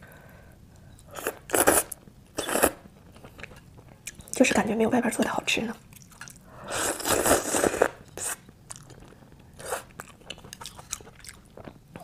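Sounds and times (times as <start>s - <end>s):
wet mouth clicks and chewing: 5.9s - 6.4s, 7.9s - 9.2s, 9.8s - 12.0s.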